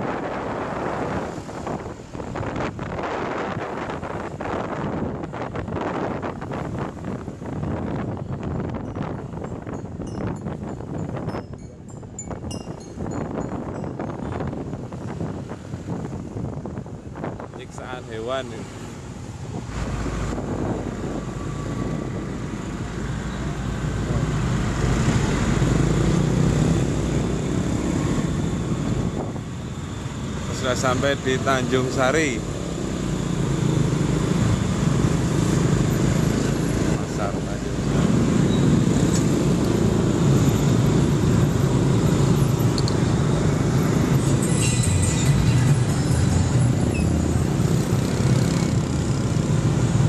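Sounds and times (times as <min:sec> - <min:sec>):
traffic rumble: 0:00.0 - 0:50.0
truck passing close: 0:18.5 - 0:50.0
motorcycle engine cruising: 0:32.4 - 0:50.0.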